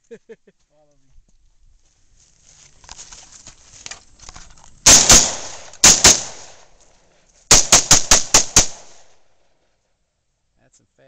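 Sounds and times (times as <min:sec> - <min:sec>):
faint rustling: 0:00.6 - 0:04.8
rifle shots echoing: 0:04.8 - 0:06.8, 0:07.5 - 0:09.4.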